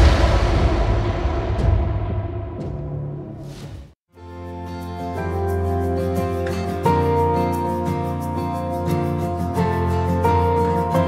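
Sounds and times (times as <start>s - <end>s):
deep booming hit: 0.0s - 4.0s.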